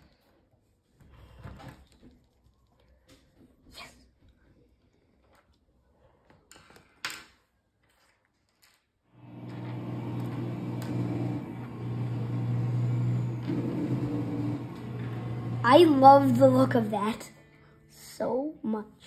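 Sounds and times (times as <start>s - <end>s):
low machine hum: 9.2s - 16.8s.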